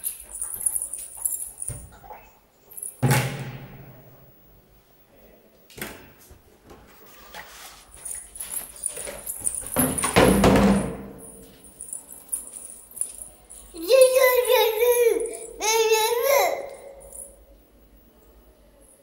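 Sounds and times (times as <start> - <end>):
plastic bottle thumping on tiles: 9.8 - 11.2.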